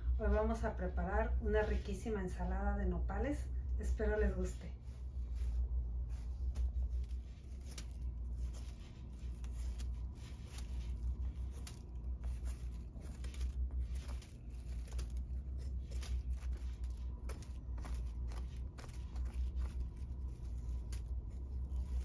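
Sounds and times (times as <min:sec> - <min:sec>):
steady low hum: 0:00.0 - 0:22.0
knife scraping cactus pad: 0:06.2 - 0:22.0
plastic bag crinkling: 0:06.2 - 0:22.0.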